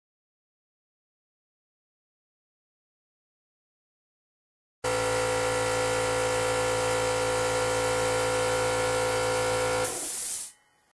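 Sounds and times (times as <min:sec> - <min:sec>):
air compressor running: 0:04.8 - 0:10.6.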